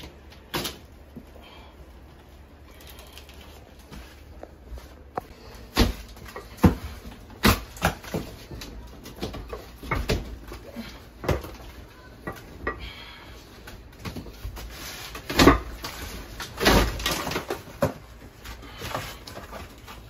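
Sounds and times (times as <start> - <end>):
wall panel cracking and breaking: 0.0 - 1.0, 5.6 - 10.6, 14.0 - 20.0.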